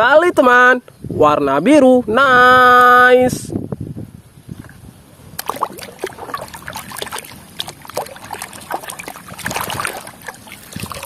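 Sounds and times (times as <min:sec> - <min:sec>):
water sloshing in plastic basin: 0:05.4 - 0:11.0
brush scrubbing: 0:05.5 - 0:11.0.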